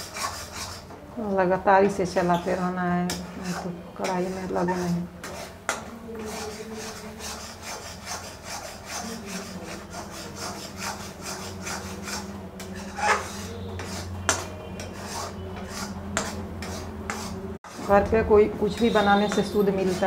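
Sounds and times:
metal spatula scraping pan: 0:00.0 - 0:00.9, 0:02.1 - 0:20.0.

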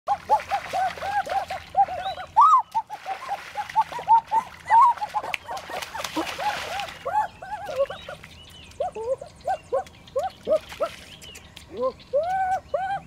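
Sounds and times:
chorus of animals chirping: 0:06.7 - 0:13.0.

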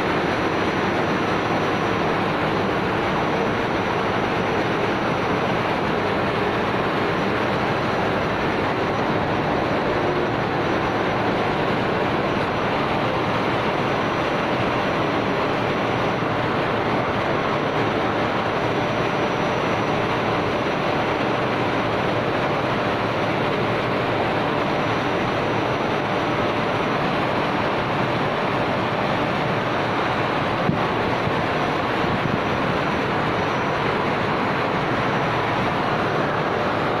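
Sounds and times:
high-pressure pump running: 0:00.0 - 0:37.0.

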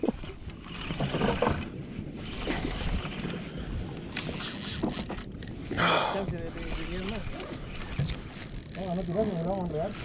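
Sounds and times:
water against boat hull: 0:00.0 - 0:10.0
wind: 0:00.0 - 0:10.0.

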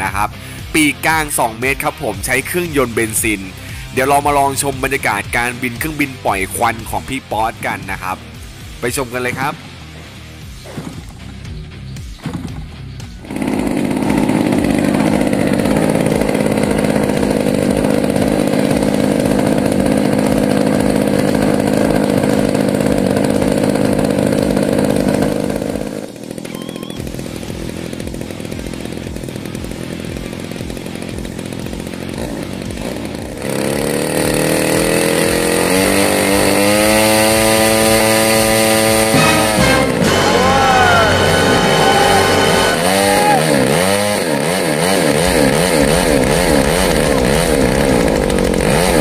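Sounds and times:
model plane engine buzzing: 0:12.0 - 0:49.0.

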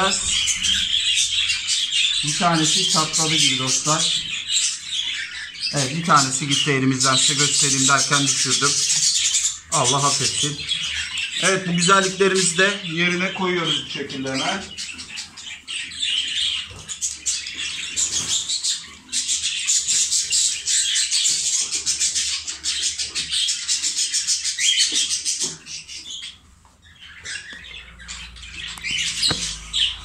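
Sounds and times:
budgerigars chattering and chirping: 0:00.0 - 0:30.0.

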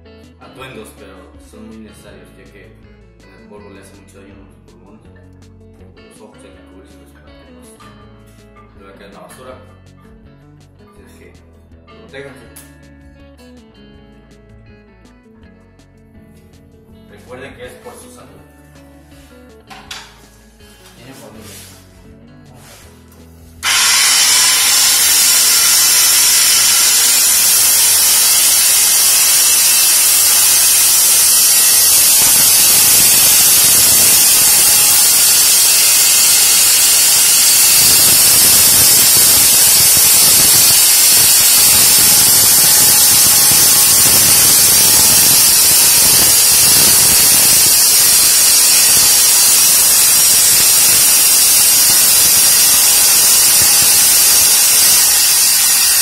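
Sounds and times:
circular saw cutting wood: 0:23.6 - 0:56.0.

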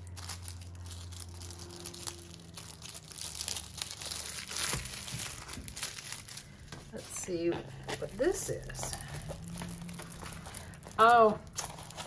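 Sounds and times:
plastic sleeve crinkling: 0:00.0 - 0:12.0.

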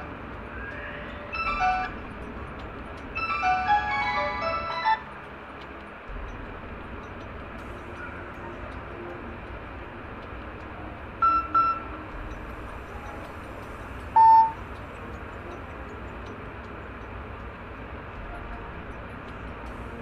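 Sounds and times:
lower phone beep: 0:11.2 - 0:11.8, 0:14.2 - 0:14.6
phone alert beeps: 0:14.2 - 0:14.6.

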